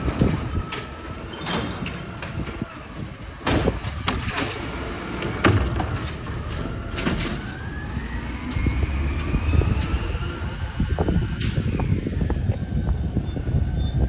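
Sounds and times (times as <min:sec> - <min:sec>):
truck engine rumble: 0:00.0 - 0:14.0
clanks and bangs of plastic cart: 0:03.4 - 0:06.2
rising whine: 0:07.4 - 0:14.0.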